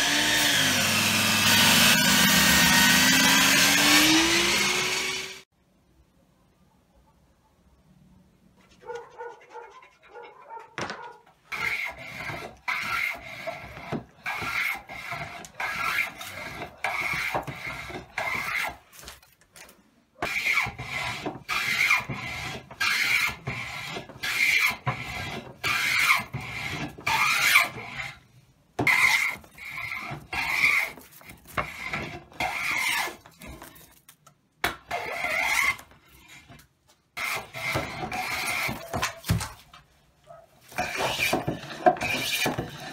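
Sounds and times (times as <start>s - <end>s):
hand plane shaving wood: 11.5s - 19.2s, 20.2s - 28.2s, 28.8s - 34.0s, 37.2s - 39.1s, 40.7s - 42.9s.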